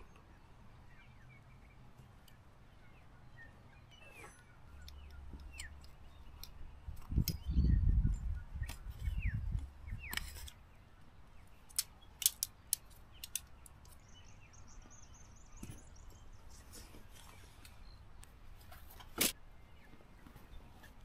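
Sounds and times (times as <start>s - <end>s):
bird chirps: 0.0s - 18.1s
sharp clicks: 11.7s - 14.0s.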